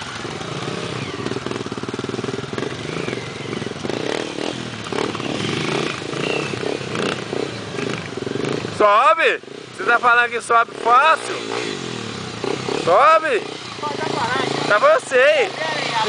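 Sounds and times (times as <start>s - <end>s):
dirt bike engines revving: 0.0s - 16.0s.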